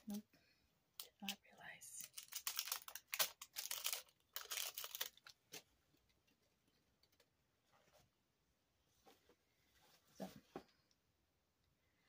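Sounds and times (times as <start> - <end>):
packaging crinkling and rustling: 1.0 - 7.3.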